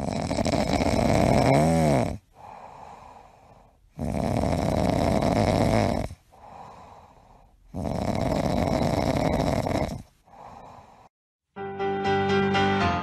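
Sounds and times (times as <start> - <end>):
dog snoring: 0.0 - 11.1
dog breathing: 2.3 - 11.1.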